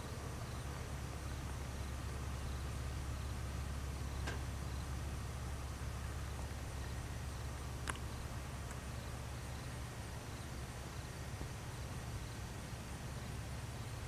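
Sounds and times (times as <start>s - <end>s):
distant propeller plane engine drone: 0.0s - 14.0s.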